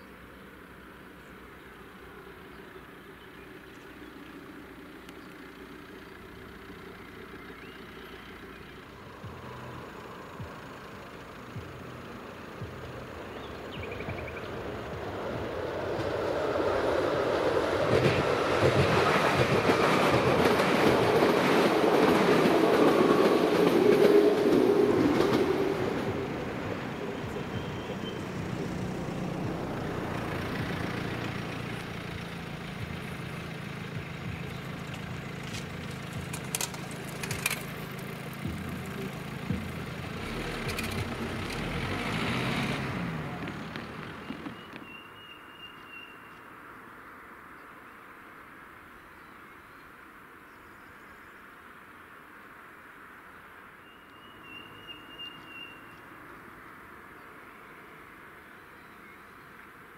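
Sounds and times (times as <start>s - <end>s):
train rumbling over crossing: 0.2s - 45.6s
sharp clicks: 34.8s - 38.1s.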